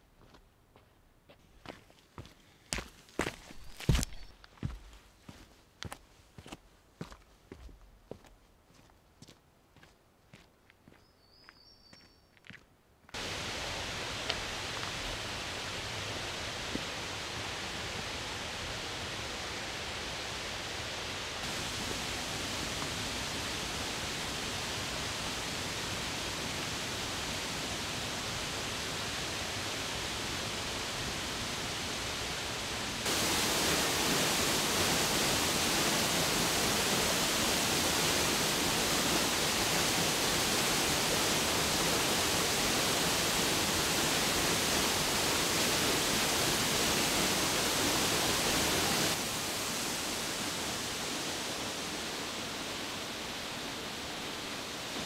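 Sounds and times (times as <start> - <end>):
waterfall rushing: 13.2 - 55.0.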